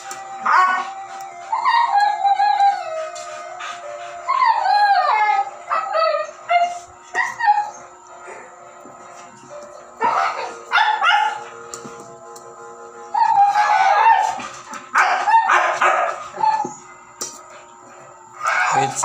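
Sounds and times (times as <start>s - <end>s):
puppy yipping and whining: 4.2s - 7.9s, 13.2s - 16.8s.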